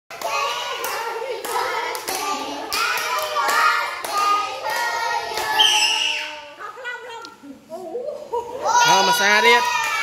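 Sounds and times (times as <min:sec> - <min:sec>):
people singing: 0:00.1 - 0:06.4.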